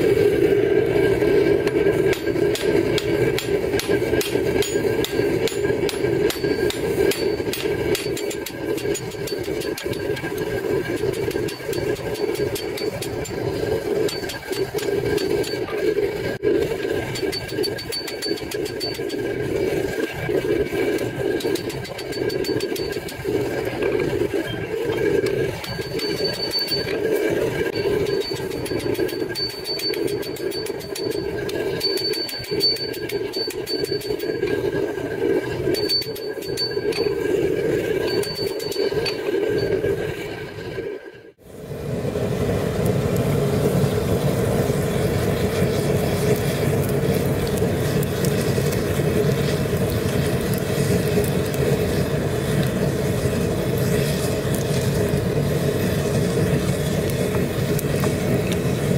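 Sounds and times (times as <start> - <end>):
gas forge burner roar: 0.0 - 58.9
hammer striking steel on anvil: 1.6 - 15.8.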